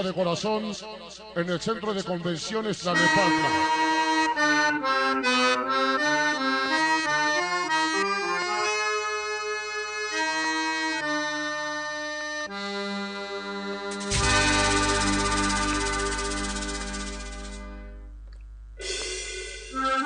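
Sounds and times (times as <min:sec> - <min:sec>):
melody of held notes: 0:03.6 - 0:18.1.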